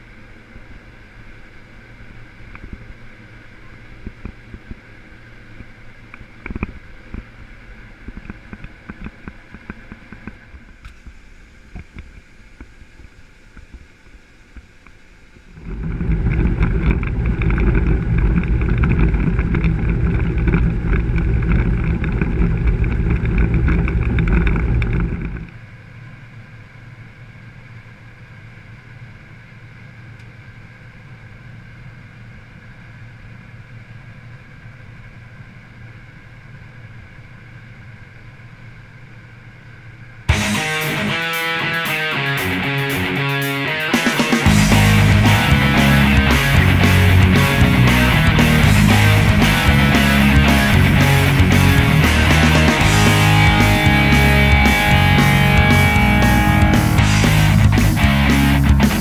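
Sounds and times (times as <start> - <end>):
combine harvester hum: 15.3 - 59.0.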